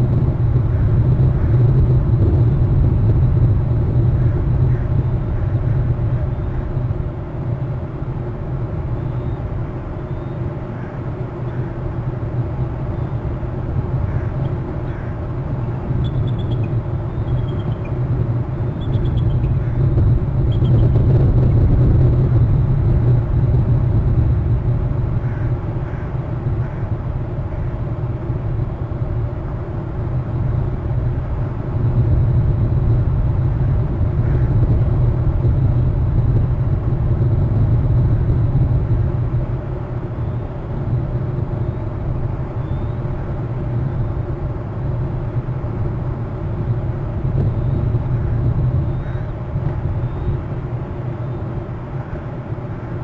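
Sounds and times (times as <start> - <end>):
low rumble: 0.0 - 53.0
faint high chirps: 16.0 - 18.0.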